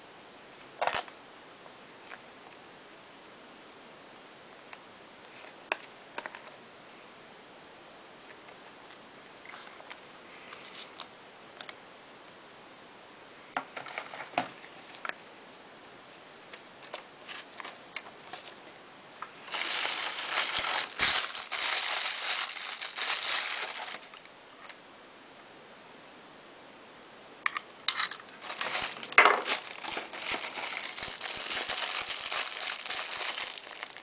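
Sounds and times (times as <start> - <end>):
plastic bag crinkling: 19.4 - 24.3, 28.0 - 34.0.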